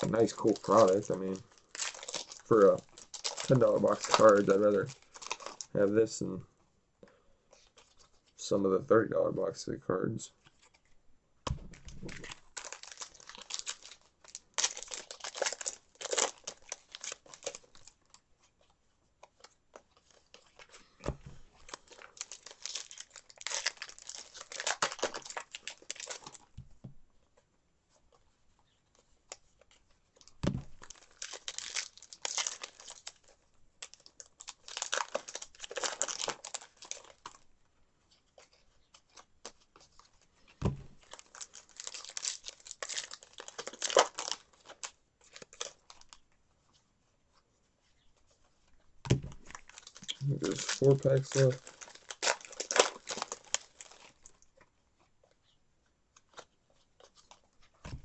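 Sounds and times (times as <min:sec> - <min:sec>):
card pack wrappers tearing: 0:00.0 - 0:05.9, 0:11.7 - 0:18.2, 0:21.6 - 0:26.5, 0:30.2 - 0:37.4, 0:41.0 - 0:46.2, 0:49.4 - 0:54.4.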